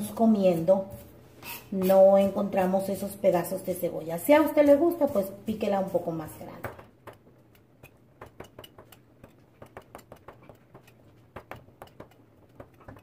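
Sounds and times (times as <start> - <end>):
knife tapping on cutting board: 6.6 - 13.0.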